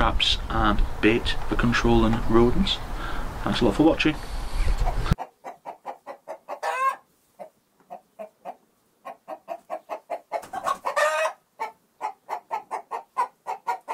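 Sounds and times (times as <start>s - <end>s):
hen clucking: 4.5s - 13.9s.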